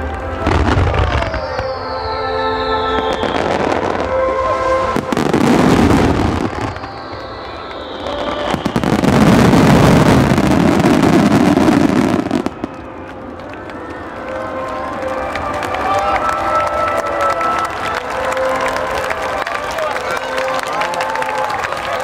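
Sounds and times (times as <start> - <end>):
fireworks bursting and crackling: 0.0 - 14.4.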